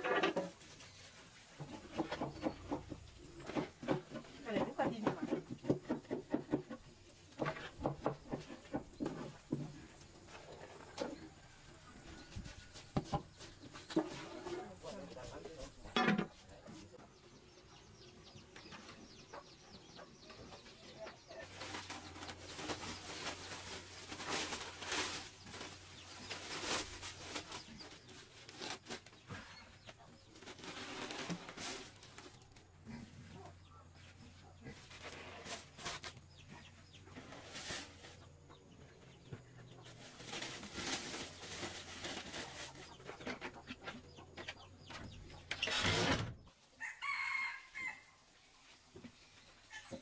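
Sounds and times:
chickens clucking: 0.0s - 28.5s, 29.1s - 30.8s, 31.9s - 45.8s.

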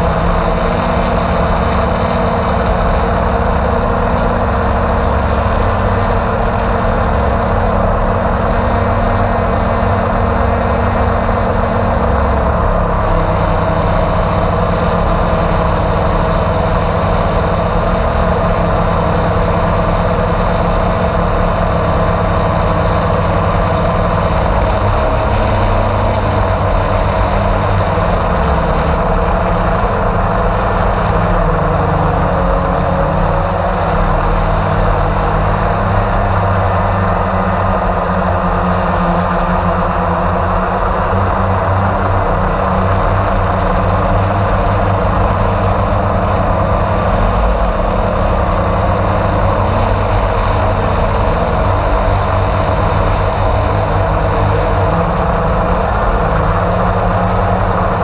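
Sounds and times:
drone propellers humming: 0.0s - 58.0s.

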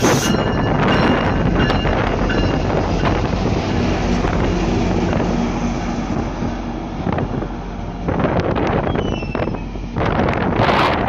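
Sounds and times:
diesel locomotive engine passing: 0.0s - 11.0s
wind buffeting microphone: 0.0s - 11.0s.

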